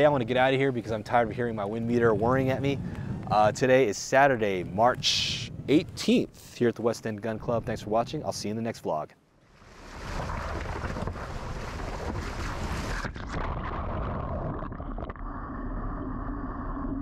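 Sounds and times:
creek water rushing and splashing: 0:09.5 - 0:13.1.

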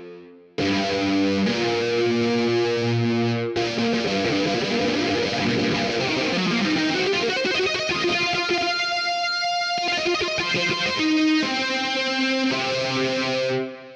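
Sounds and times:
distorted electric guitar: 0:00.0 - 0:13.9.

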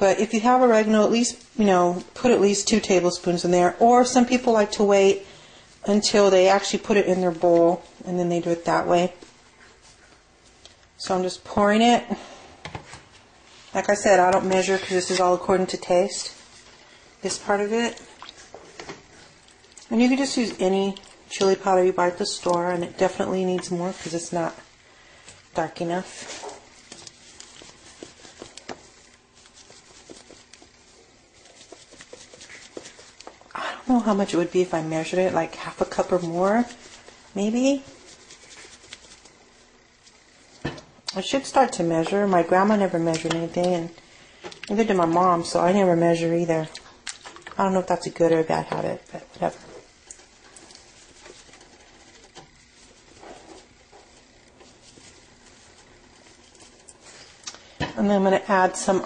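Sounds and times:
pot of broth being stirred: 0:26.1 - 0:33.4.

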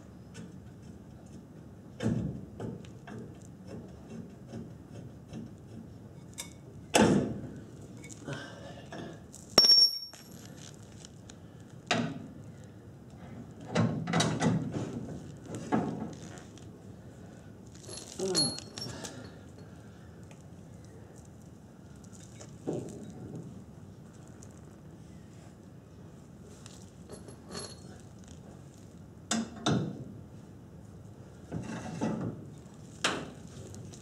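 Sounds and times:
clunks of steel parts and tools: 0:09.6 - 0:10.4, 0:17.8 - 0:19.4
sharp metallic clink: 0:09.6 - 0:10.4.

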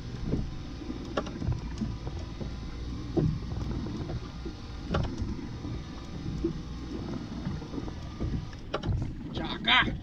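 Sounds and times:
boat engine rumble: 0:00.0 - 0:10.0
water noise: 0:00.0 - 0:10.0
wind: 0:00.0 - 0:10.0.

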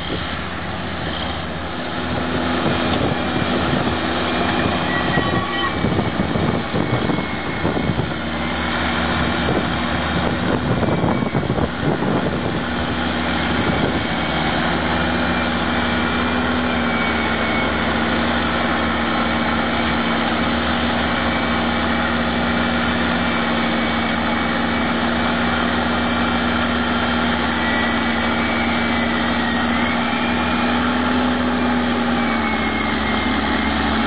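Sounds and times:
diesel engine under load: 0:00.0 - 0:34.0.

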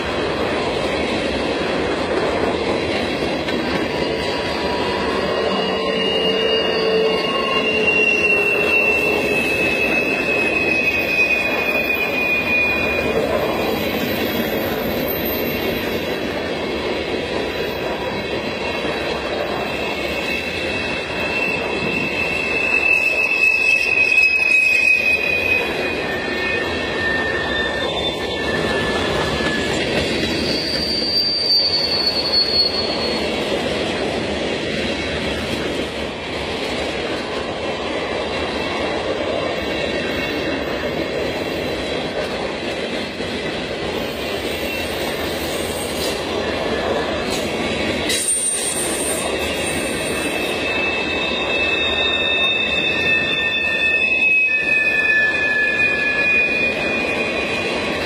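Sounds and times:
train wheels rumbling on rails: 0:00.0 - 0:58.0
high metal wheel squeals: 0:03.6 - 0:16.3, 0:18.6 - 0:33.4, 0:44.0 - 0:46.2, 0:48.1 - 0:58.0.

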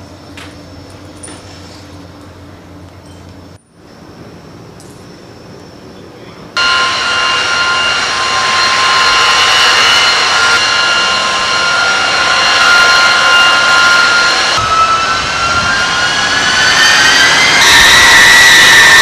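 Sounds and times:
jet engine whining roar: 0:06.4 - 0:19.0.

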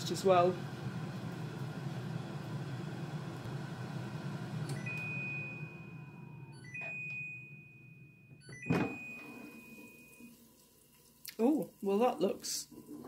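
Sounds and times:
air fryer fan running: 0:00.0 - 0:07.4.

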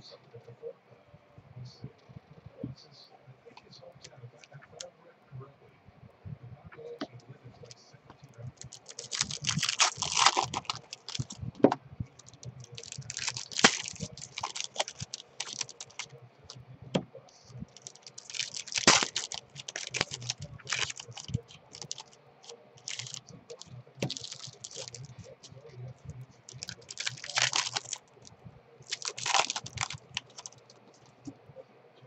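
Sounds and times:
foil wrappers crinkling and tearing: 0:08.6 - 0:11.4, 0:12.2 - 0:16.1, 0:17.7 - 0:22.2, 0:22.8 - 0:25.6, 0:26.5 - 0:28.2, 0:28.8 - 0:30.8.

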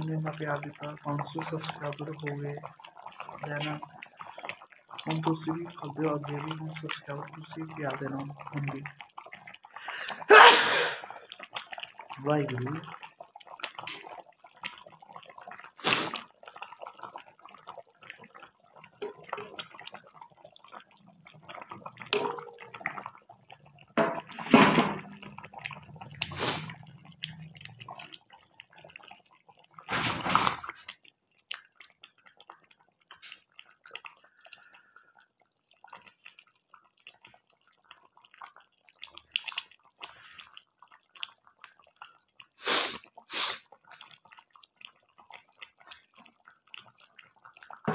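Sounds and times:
curry bubbling in pan: 0:00.0 - 0:47.9
ladle scraping and knocking pan: 0:19.0 - 0:19.6, 0:22.2 - 0:22.6, 0:24.0 - 0:25.1.

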